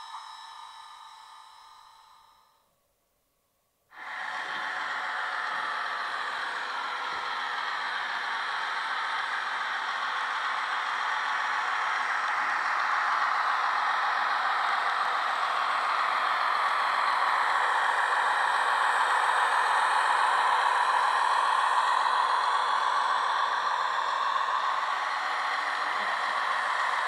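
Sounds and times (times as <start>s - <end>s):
model train wheels rolling on rails: 4.0s - 27.0s.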